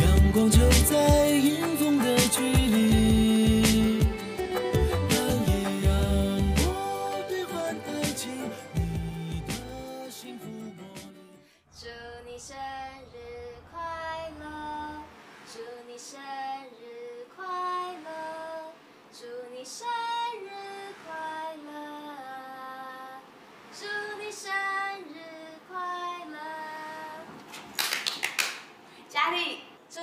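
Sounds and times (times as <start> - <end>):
woman singing slow melody: 11.8 - 27.3.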